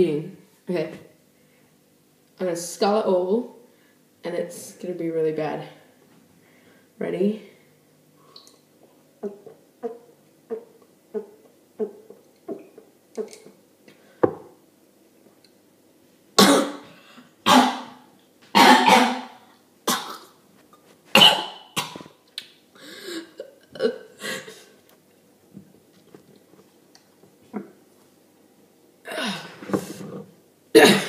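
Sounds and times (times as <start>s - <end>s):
person gulping liquid: 9.2s - 13.6s
person coughing hard: 16.4s - 16.9s, 17.5s - 18.0s, 18.6s - 20.3s, 21.2s - 22.1s, 30.8s - 31.0s.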